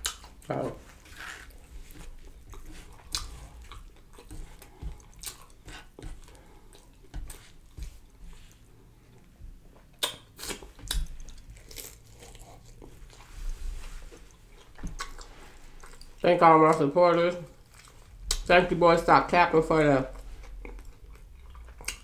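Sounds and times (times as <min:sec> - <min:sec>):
chewing: 0:00.0 - 0:09.3, 0:09.9 - 0:16.2, 0:17.5 - 0:18.4, 0:20.1 - 0:22.0.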